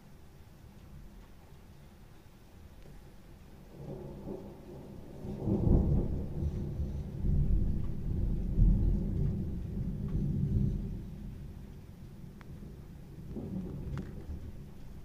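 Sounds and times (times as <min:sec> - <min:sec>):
rolling thunder: 0:03.6 - 0:15.0.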